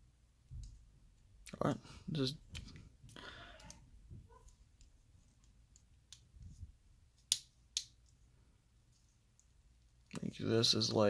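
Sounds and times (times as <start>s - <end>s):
sharp plastic snaps: 7.2s - 8.1s.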